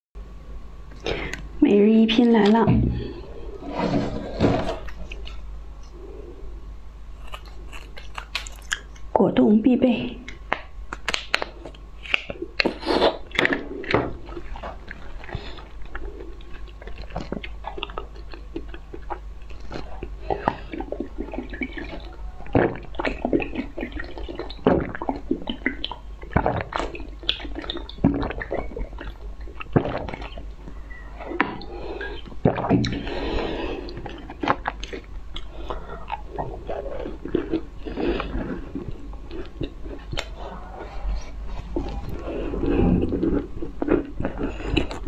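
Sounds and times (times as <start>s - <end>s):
slurping a drink: 3.0s - 5.3s
squishy chewing and swallowing: 7.1s - 9.1s, 10.2s - 45.0s
lip and tongue clicks: 7.2s - 9.1s, 10.2s - 33.1s, 33.9s - 40.5s.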